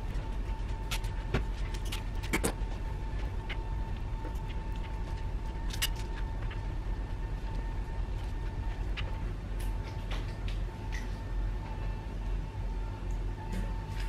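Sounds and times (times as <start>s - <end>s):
faint high whine: 0.0s - 14.0s
low steady hum: 0.0s - 14.0s.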